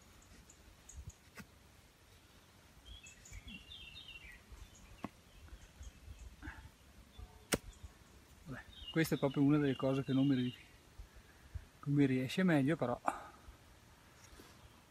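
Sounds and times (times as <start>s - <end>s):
small bird chirping: 0.0s - 10.8s.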